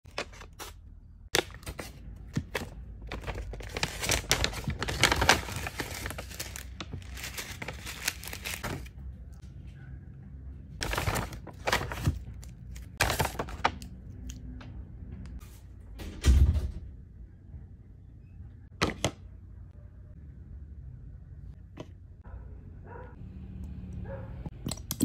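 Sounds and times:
bags crinkling and rustling: 2.5s - 8.9s, 10.8s - 13.8s.

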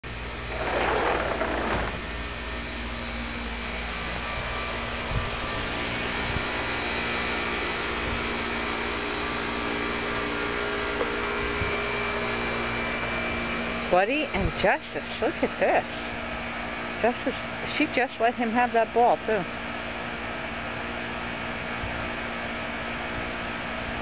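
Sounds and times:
machine hum with hiss: 0.0s - 24.0s.

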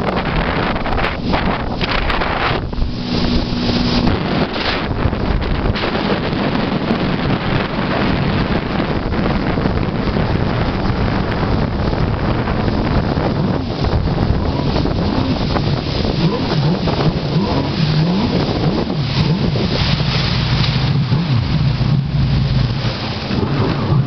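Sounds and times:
jet ski engine: 0.0s - 24.0s
wind on microphone: 0.0s - 24.0s
water hissing: 11.9s - 24.0s.

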